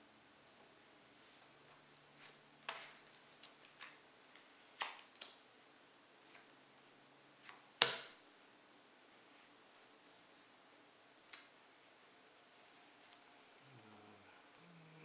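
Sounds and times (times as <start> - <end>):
playing cards clicking and rustling: 1.7 - 5.4
cards slapped on table: 7.5 - 8.2.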